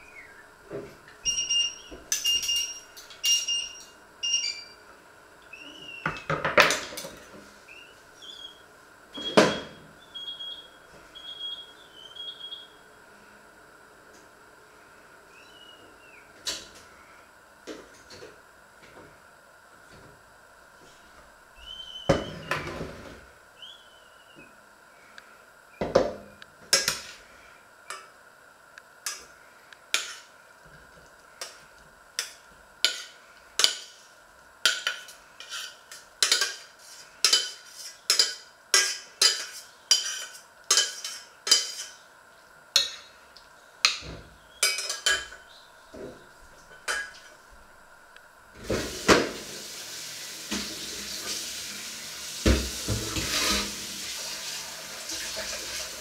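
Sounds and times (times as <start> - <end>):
utensil scraping metal saucepan: 34.8 - 42.0, 53.0 - 53.8
tap water running: 48.6 - 56.0.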